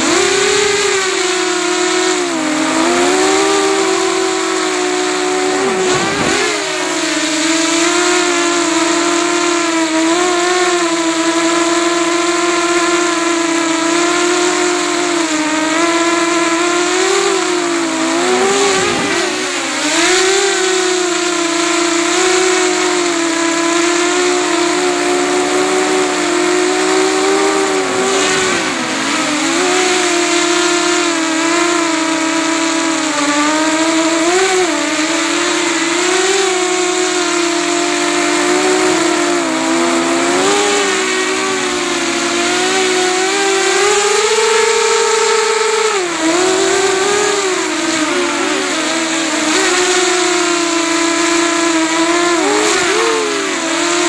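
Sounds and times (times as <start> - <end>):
quadcopter propellers whining: 0.0 - 54.0.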